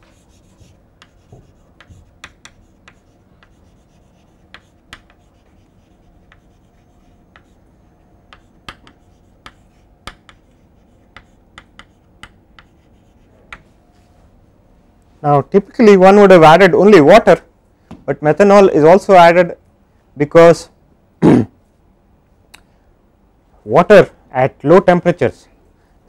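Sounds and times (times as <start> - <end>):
chalk tapping and scratching on blackboard: 0.0 - 13.8.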